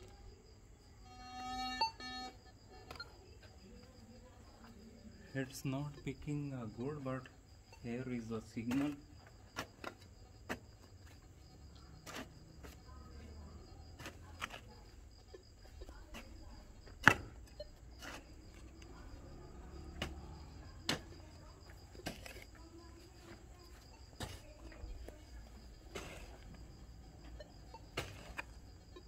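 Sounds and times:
crickets chirping: 0.0 - 29.0
hoe chopping into soil: 8.6 - 10.7, 16.0 - 17.4, 19.9 - 21.2, 21.9 - 22.5, 25.9 - 26.4, 27.9 - 28.5.

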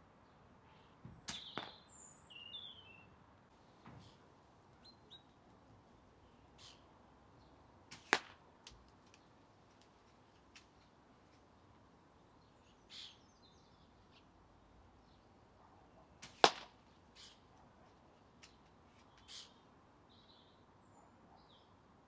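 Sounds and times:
faint birds chirping: 0.0 - 22.0
pellets clicking on a target: 7.9 - 10.7, 16.2 - 16.8.

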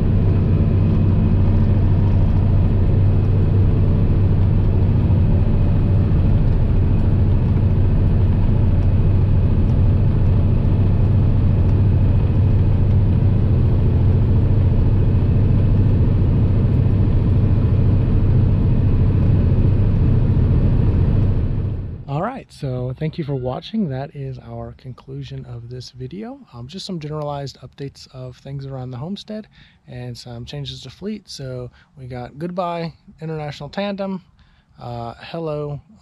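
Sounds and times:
truck diesel engine droning: 0.0 - 22.1.

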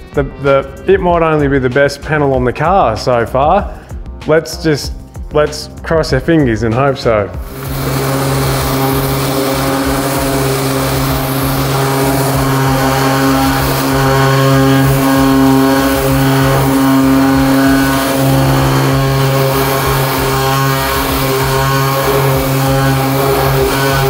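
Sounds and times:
orbital sander on steel: 7.4 - 24.0.

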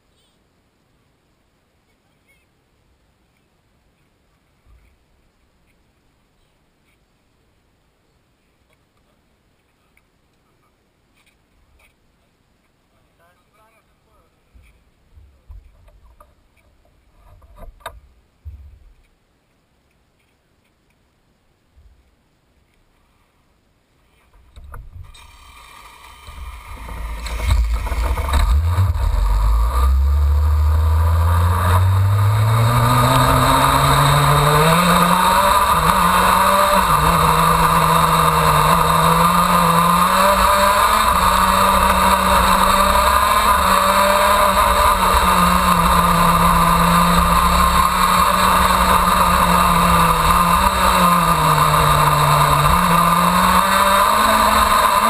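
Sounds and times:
two-stroke kart engine revving: 25.1 - 55.0.

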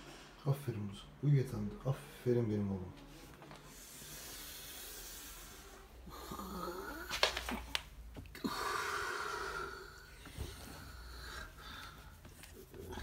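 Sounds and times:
hand rubbing fur: 11.4 - 13.0.

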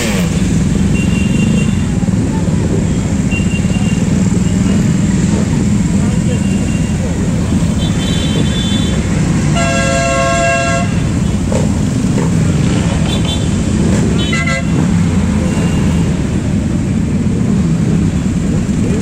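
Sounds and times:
horns honking: 0.0 - 2.1, 3.1 - 5.1, 6.1 - 11.4, 13.0 - 16.1
motorcycle engines running: 0.0 - 19.0.

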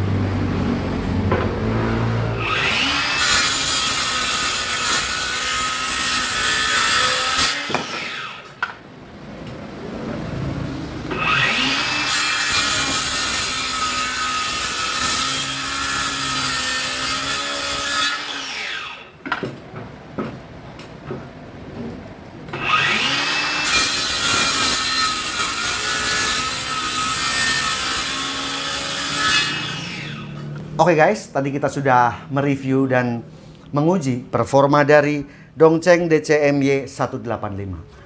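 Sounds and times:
circular saw cutting timber: 1.6 - 8.6, 11.1 - 19.2, 22.5 - 30.6.

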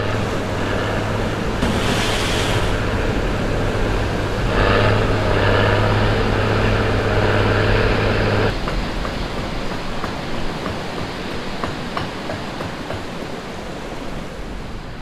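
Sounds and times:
heavy machinery running: 0.0 - 8.7
short hiss: 1.6 - 3.0.

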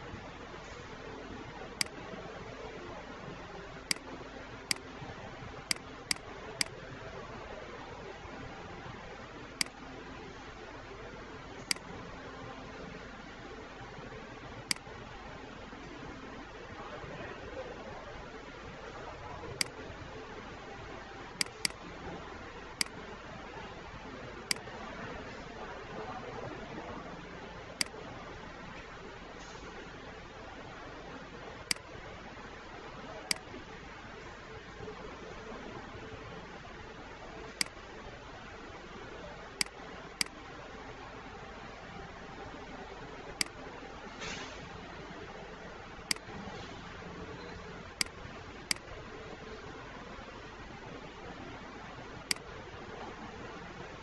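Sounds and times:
low room noise hiss: 0.0 - 54.0
computer mouse clicking: 3.9 - 4.1, 5.7 - 6.8, 11.6 - 11.9, 14.7 - 14.9, 19.6 - 19.8, 21.4 - 21.9, 46.1 - 46.3, 48.0 - 48.9, 52.3 - 52.5.

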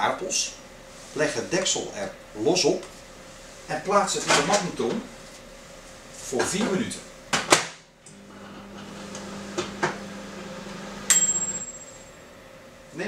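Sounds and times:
microwave humming: 7.3 - 13.0
timer bell ding: 11.1 - 12.0.

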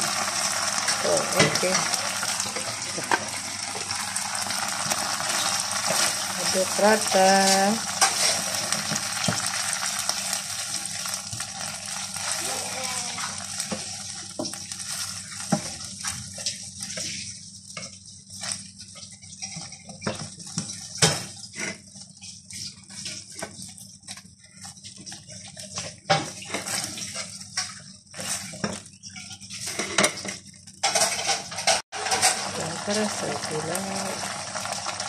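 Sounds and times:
sauce sizzling: 0.0 - 19.5, 31.9 - 35.0
spatula scraping pan: 4.6 - 9.9, 12.1 - 23.9, 24.5 - 32.7.

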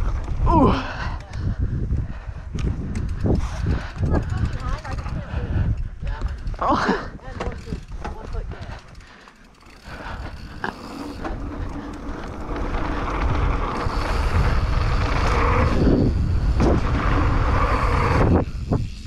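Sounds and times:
wind rushing over microphone: 0.0 - 9.0, 9.7 - 19.0
bike tyres rumbling on dirt: 2.6 - 19.0.

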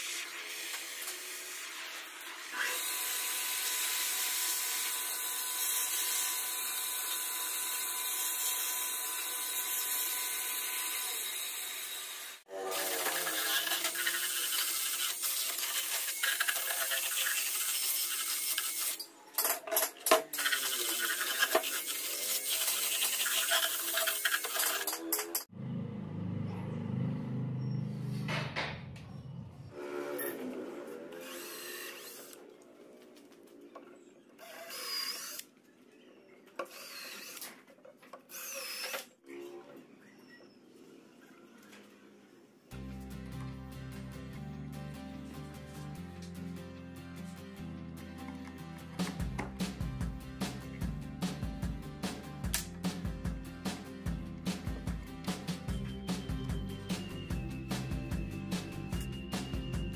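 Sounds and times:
drill motor whine: 29.8 - 32.4, 34.4 - 35.4
cordless drill into wood: 34.4 - 35.4, 36.6 - 37.5.

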